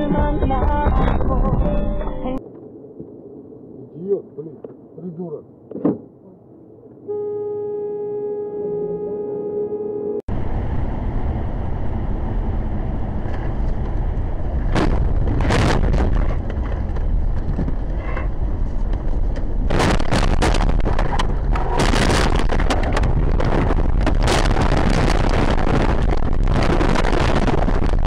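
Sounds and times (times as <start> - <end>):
car road noise from inside: 10.2 - 28.0
car scraping: 13.0 - 24.6.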